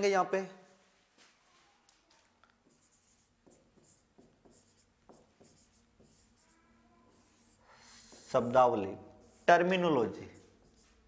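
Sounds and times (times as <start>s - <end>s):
pen scratching and tapping on screen: 2.4s - 8.4s.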